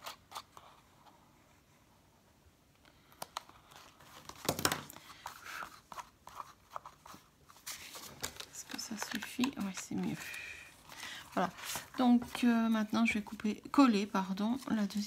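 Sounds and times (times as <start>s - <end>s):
paper rustling: 3.4s - 13.5s.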